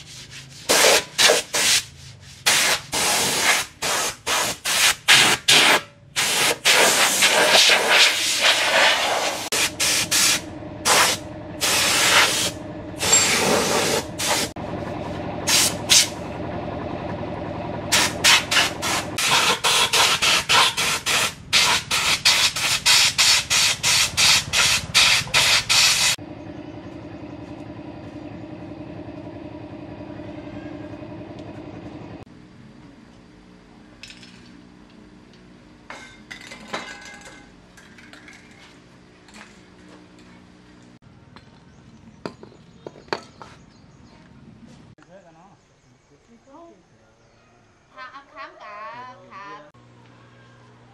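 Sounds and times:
air blow gun hissing: 0:00.7 - 0:14.6, 0:15.5 - 0:16.2, 0:17.9 - 0:26.2
motor hum: 0:09.5 - 0:20.3, 0:23.6 - 0:35.9.

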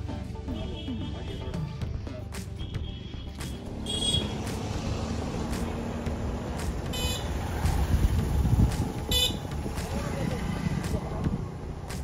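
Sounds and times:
car horn beeps: 0:02.6 - 0:04.4, 0:06.9 - 0:07.3, 0:09.1 - 0:09.5
low rumble of traffic: 0:03.1 - 0:12.0.

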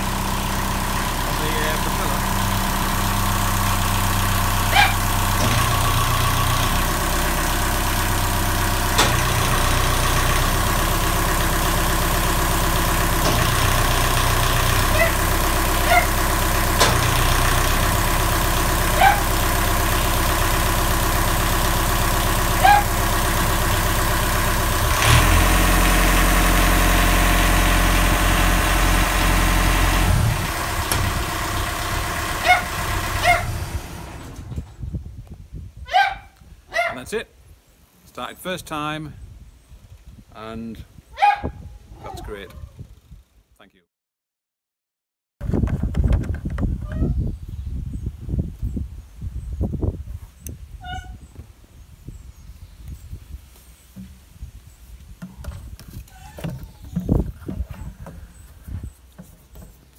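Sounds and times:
diesel boat engine idling: 0:00.0 - 0:34.8.

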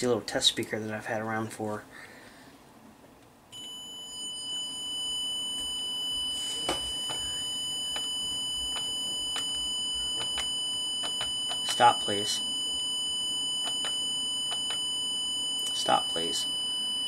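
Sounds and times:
high-pitched electronic tone: 0:03.6 - 0:17.0.

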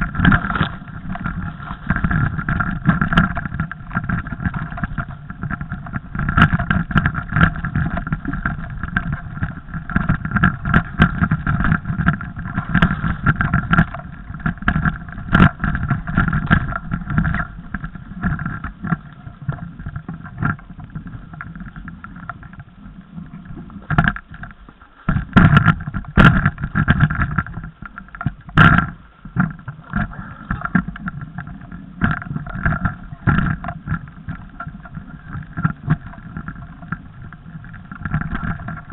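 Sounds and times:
bike clattering over bumps: 0:00.0 - 0:22.5
tyre noise: 0:00.0 - 0:38.9.

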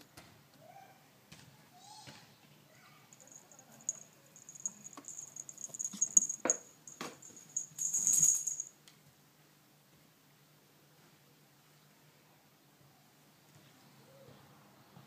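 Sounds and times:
metallic jingling rattle: 0:03.1 - 0:08.7
thin high ringing: 0:03.1 - 0:08.7.

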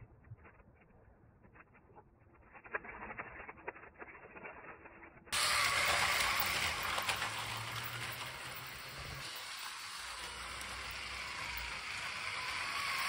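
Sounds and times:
toy train wheels rattling on track: 0:05.4 - 0:13.0.

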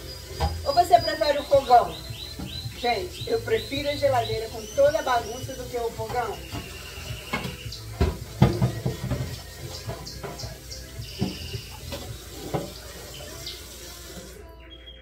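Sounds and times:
tap running into a sink: 0:00.4 - 0:00.7, 0:06.0 - 0:13.2.

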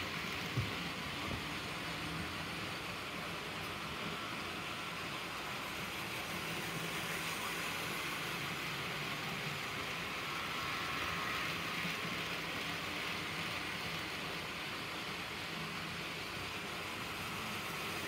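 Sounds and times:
model train whirring on track: 0:00.0 - 0:18.0.

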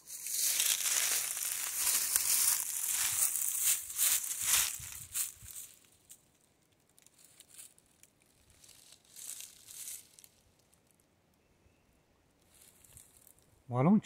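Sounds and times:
footsteps crunching dry leaves: 0:00.0 - 0:06.2, 0:07.0 - 0:10.5, 0:12.5 - 0:13.3.

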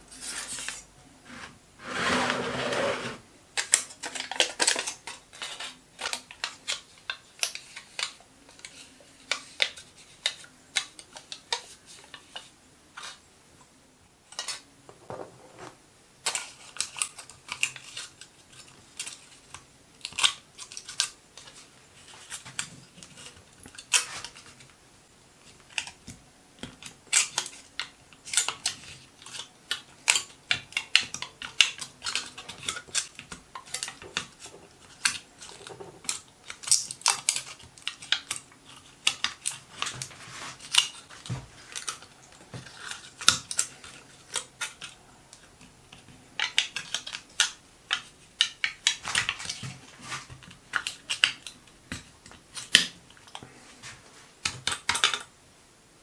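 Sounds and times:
aluminium foil crinkling: 0:03.6 - 0:13.2, 0:16.2 - 0:24.7, 0:26.8 - 0:45.5, 0:46.4 - 0:53.4.

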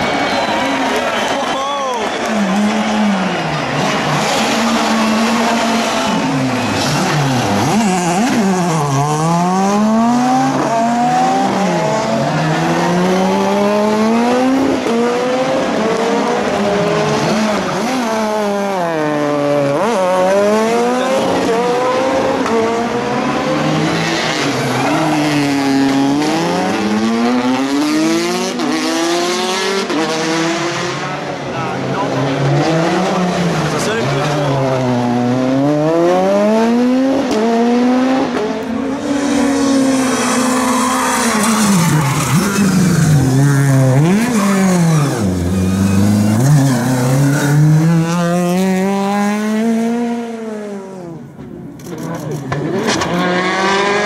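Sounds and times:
rally car engines revving: 0:00.0 - 0:54.0
tyres squealing: 0:40.0 - 0:47.8.

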